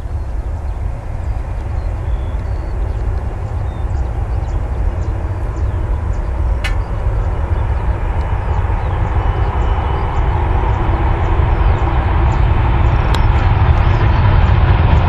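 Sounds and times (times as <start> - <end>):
faint whine: 0.0 - 15.0
jet engine roar: 0.0 - 15.0
sharp click: 6.6 - 6.9.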